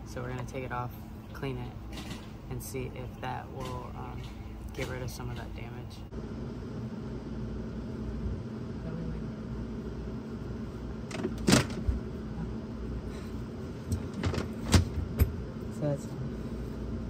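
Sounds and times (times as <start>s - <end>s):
steady low rumble: 0.0s - 17.0s
wiring rustling and knocking: 13.8s - 15.4s.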